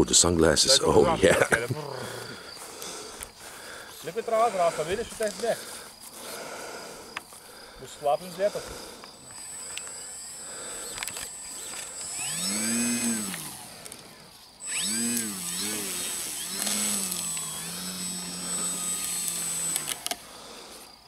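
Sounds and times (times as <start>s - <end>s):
model plane electric motor whine: 8.1s - 20.9s.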